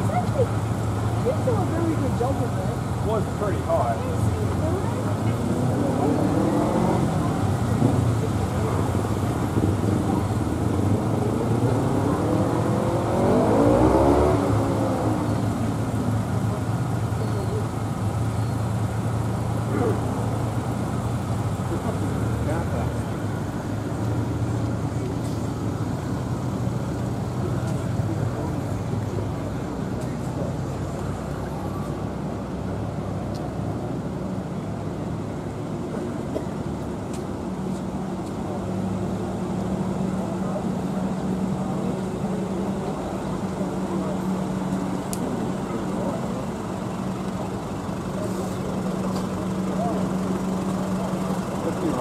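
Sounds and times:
vehicle passing: 0:00.0 - 0:16.7
low rumble of traffic: 0:00.0 - 0:52.0.

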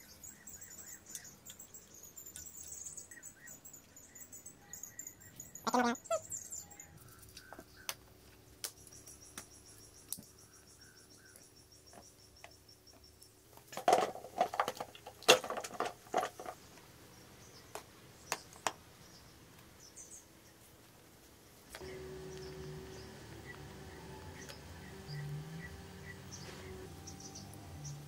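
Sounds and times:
plastic knocks and rattles: 0:13.6 - 0:16.6
plastic parts clicking and knocking: 0:13.6 - 0:16.6.

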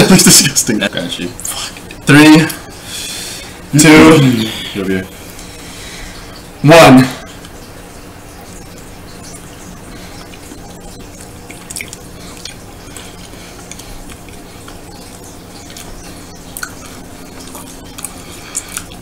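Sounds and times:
steady low hum: 0:00.0 - 0:19.0
wet chewing mouth clicks: 0:11.2 - 0:19.0.

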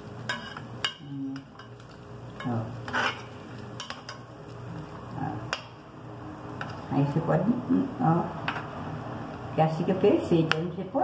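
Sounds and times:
meatballs sizzling in a pan: 0:00.0 - 0:09.8
spoon stirring in a pan: 0:00.1 - 0:05.7.

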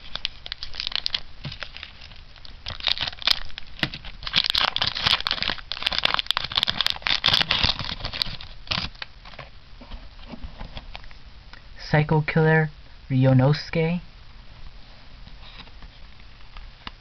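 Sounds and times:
foil wrapper crinkling: 0:00.0 - 0:09.5.

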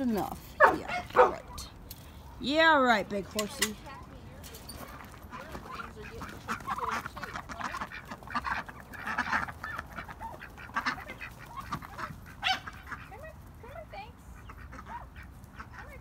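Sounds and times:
ducks quacking: 0:04.9 - 0:16.0.

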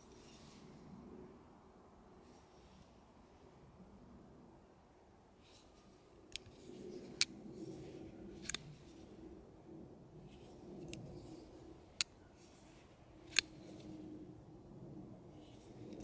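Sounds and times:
folding knife clicking open and shut: 0:08.4 - 0:09.0, 0:13.3 - 0:14.0.

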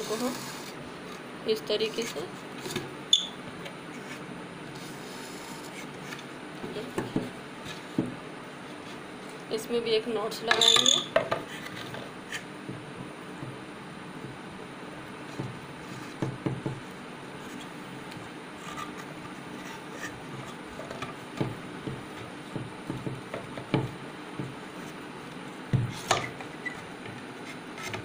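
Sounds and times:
room noise: 0:00.0 - 0:28.0
taps and knocks on wooden board: 0:16.2 - 0:16.8, 0:20.9 - 0:24.6.

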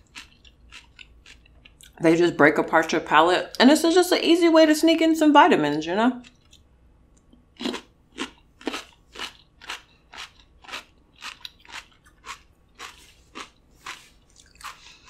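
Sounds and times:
cucumber crunching while chewed: 0:00.0 - 0:02.0, 0:07.5 - 0:15.0.

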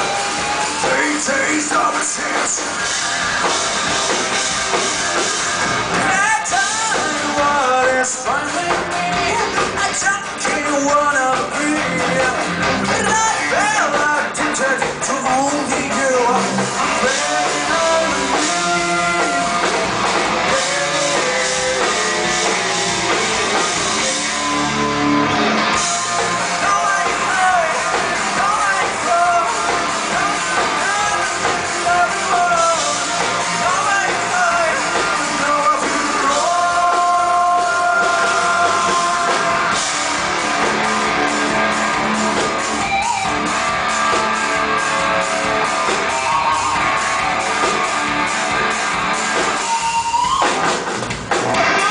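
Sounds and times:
person singing: 0:00.0 - 0:03.0, 0:06.0 - 0:40.7
live metal band: 0:00.0 - 0:51.9.

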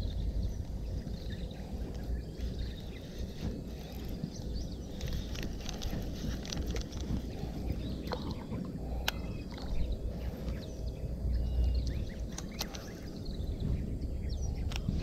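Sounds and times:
faint bird chirps: 0:00.0 - 0:15.0
wind rumbling on microphone: 0:00.0 - 0:15.0
sharp clicks: 0:11.8 - 0:13.0.

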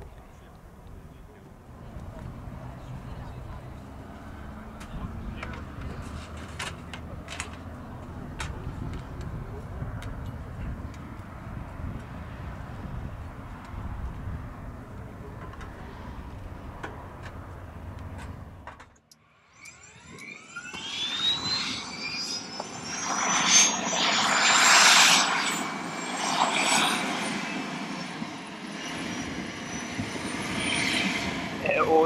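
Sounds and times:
low engine rumble: 0:00.0 - 0:19.1
helicopter turbine whine rising: 0:19.2 - 0:32.0.

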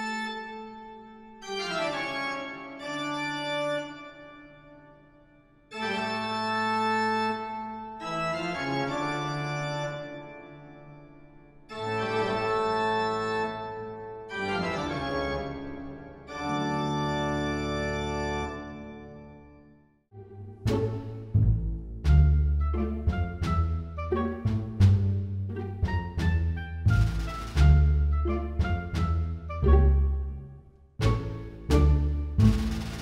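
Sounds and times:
organ chords: 0:00.0 - 0:05.0, 0:05.7 - 0:24.5.

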